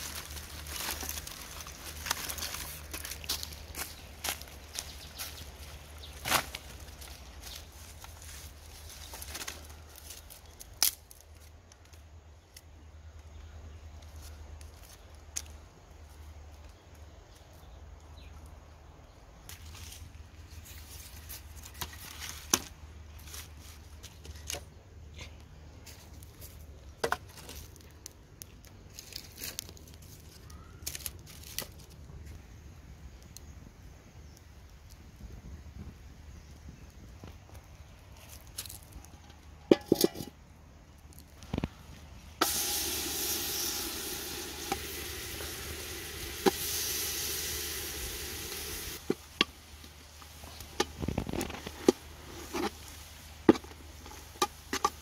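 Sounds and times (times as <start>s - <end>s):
dry leaves rustling: 0.0s - 12.0s, 19.5s - 24.7s, 25.7s - 32.4s, 37.7s - 40.3s, 41.0s - 55.0s
twigs snapping: 0.0s - 12.7s, 26.2s - 32.0s.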